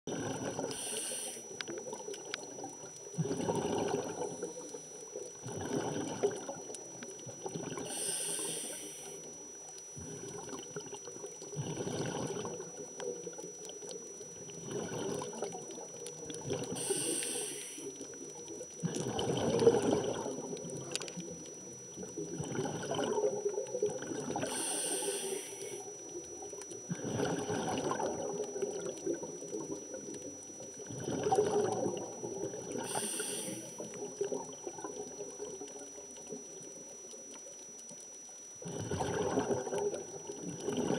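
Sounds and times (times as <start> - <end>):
bubbles gurgling underwater: 0.1 - 0.8, 1.5 - 8.1, 9.4 - 17.3, 18.0 - 25.1, 25.8 - 37.7, 38.6 - 40.9
hissing inhalations through regulator: 0.3 - 1.6, 7.8 - 9.3, 16.7 - 18.2, 24.4 - 26.0, 32.8 - 34.0.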